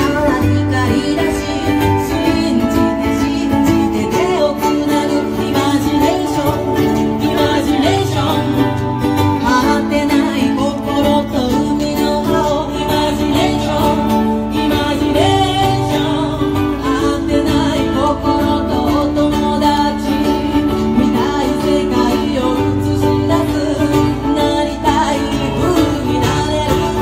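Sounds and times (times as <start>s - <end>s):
live band with plucked strings: 0.0s - 27.0s
person singing: 0.0s - 27.0s.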